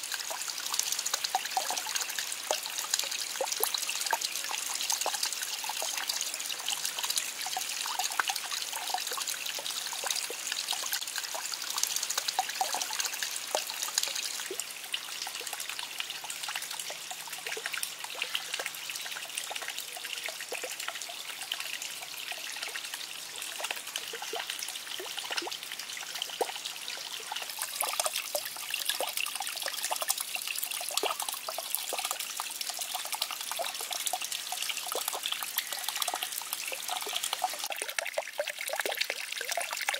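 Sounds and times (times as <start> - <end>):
small waterfall splashing into pond: 0.0 - 39.9.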